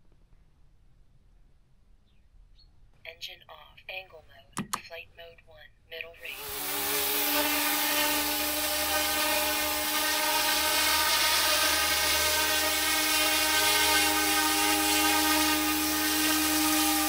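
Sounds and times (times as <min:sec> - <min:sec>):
high motor whine: 0:06.3 - 0:17.0.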